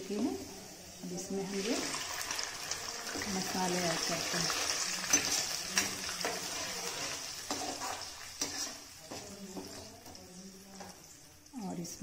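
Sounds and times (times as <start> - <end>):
paste sizzling in hot oil: 0.0 - 12.0
ladle scraping and knocking pan: 3.1 - 9.9.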